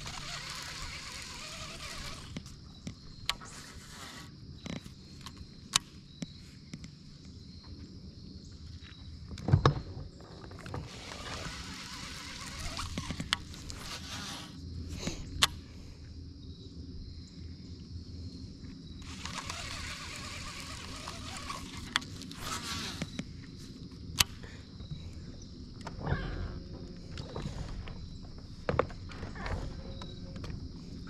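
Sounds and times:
fishing line hissing off spool: 0:00.0 - 0:02.5, 0:03.4 - 0:04.3, 0:10.8 - 0:14.6, 0:19.0 - 0:23.2
fishing reel clicks: 0:00.0 - 0:02.5, 0:19.0 - 0:23.1.

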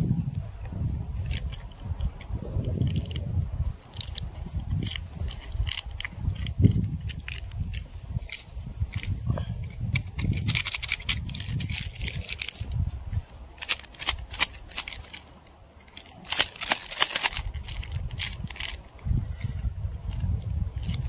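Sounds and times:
wind rumble on microphone: 0:00.0 - 0:15.2, 0:16.1 - 0:21.0.

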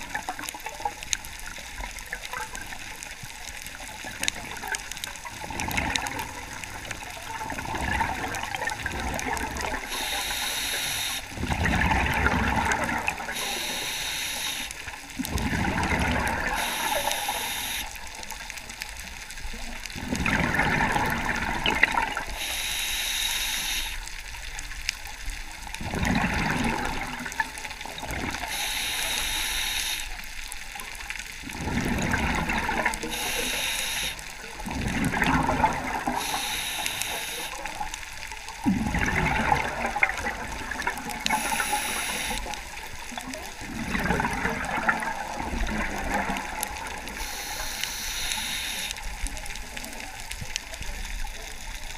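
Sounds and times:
hissing regulator inhale: 0:09.9 - 0:11.3, 0:13.3 - 0:14.8, 0:16.5 - 0:17.9, 0:22.3 - 0:24.1, 0:28.5 - 0:30.2, 0:33.1 - 0:34.3, 0:36.2 - 0:37.6, 0:41.3 - 0:42.5, 0:47.2 - 0:49.0.

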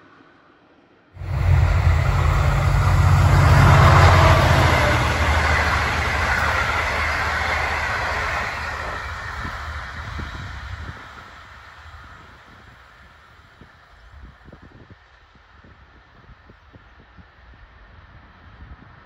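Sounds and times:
train passing at speed: 0:01.2 - 0:14.6.

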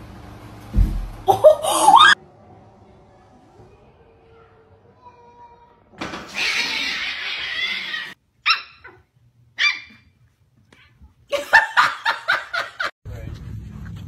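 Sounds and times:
puppy yapping: 0:06.3 - 0:10.0.

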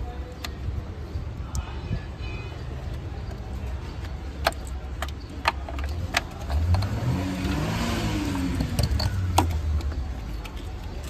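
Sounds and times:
low traffic rumble: 0:00.0 - 0:11.0
plastic connectors clicking: 0:02.9 - 0:07.6, 0:08.5 - 0:11.0
vehicle engine passing by: 0:06.4 - 0:09.8.

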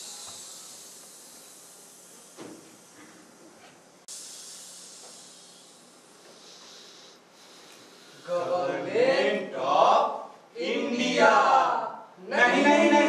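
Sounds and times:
actors hissing shhh: 0:00.0 - 0:08.5.

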